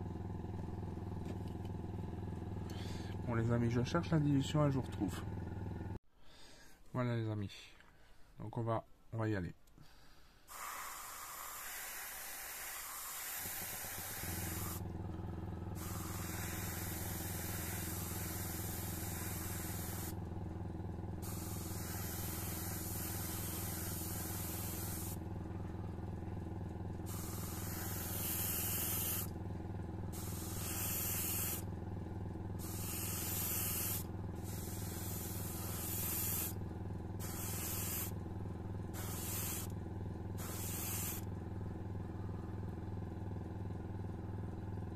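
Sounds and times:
air compressor humming: 0.0s - 6.0s, 10.4s - 44.9s
airbrush spraying hiss: 10.5s - 14.8s, 15.8s - 20.2s, 21.2s - 25.2s, 27.1s - 29.3s, 30.1s - 31.7s, 32.6s - 36.6s, 37.2s - 38.2s, 38.9s - 39.7s, 40.4s - 41.3s.

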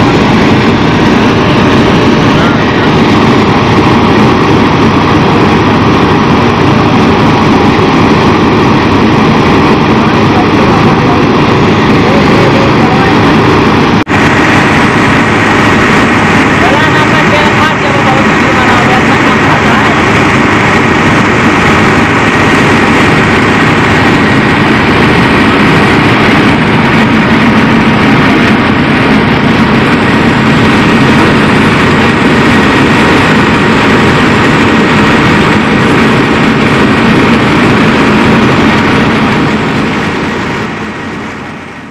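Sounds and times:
tractor diesel engine running: 0.0s - 41.9s.

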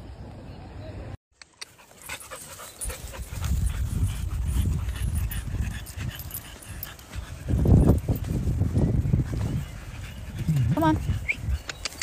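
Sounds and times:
dog panting and grumbling: 1.8s - 8.2s, 9.1s - 12.0s.

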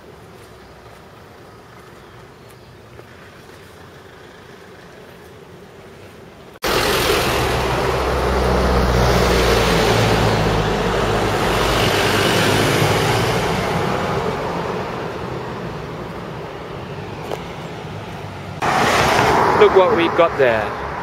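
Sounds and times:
bus engine rumble: 0.0s - 21.0s.

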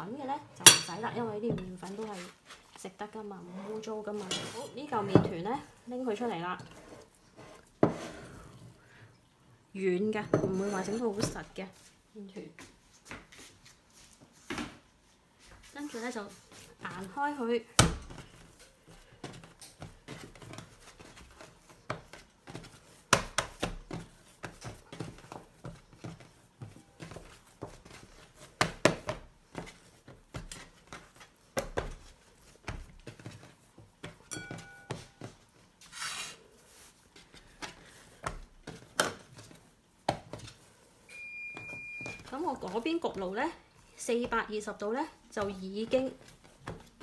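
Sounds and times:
hands slapping dough: 17.8s - 35.7s, 36.6s - 40.7s
brief beep: 41.1s - 42.2s.

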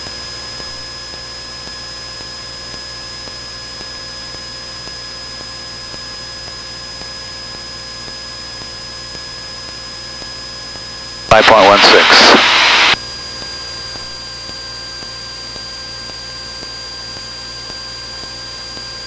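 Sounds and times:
faint aircraft engine drone: 11.3s - 13.0s
headset intercom hiss: 11.3s - 13.0s.

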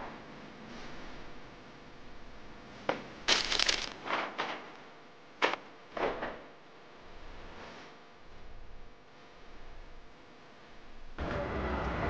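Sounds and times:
rustling and crinkling: 3.3s - 4.1s.

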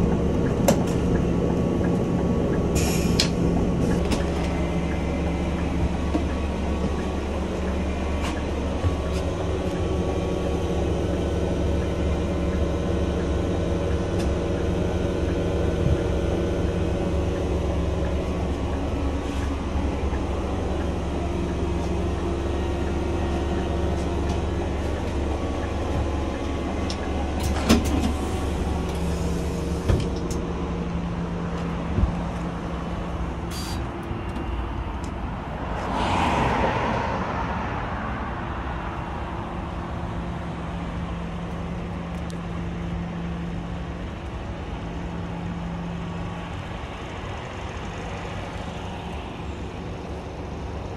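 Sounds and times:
bus diesel engine humming: 0.0s - 50.9s
brief air hiss: 33.5s - 33.8s.

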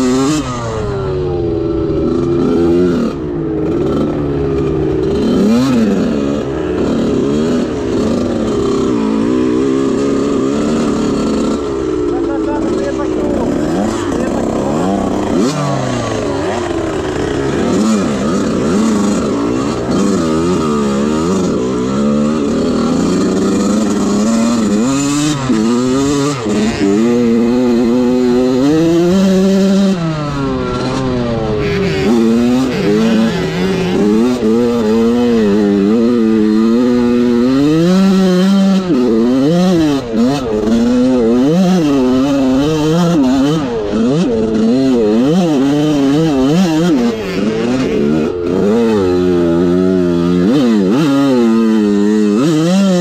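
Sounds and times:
dirt bike engine revving: 0.0s - 53.0s
second dirt bike engine: 0.0s - 53.0s.

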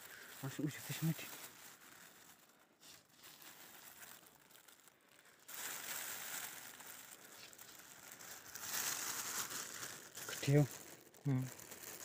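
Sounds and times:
close rustling and crinkling: 0.0s - 12.0s.

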